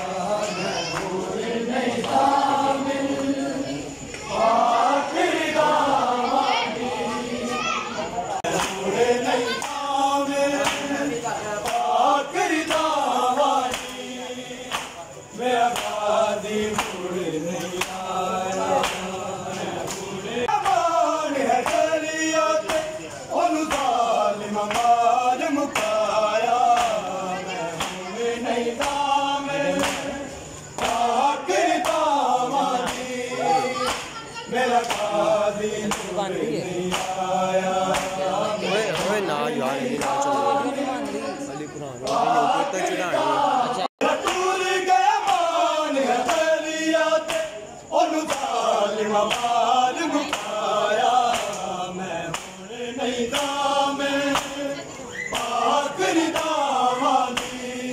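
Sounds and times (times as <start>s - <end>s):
men chanting together: 0.0s - 57.9s
hands slapping chests: 34.8s - 35.1s, 37.9s - 38.2s, 52.3s - 52.6s.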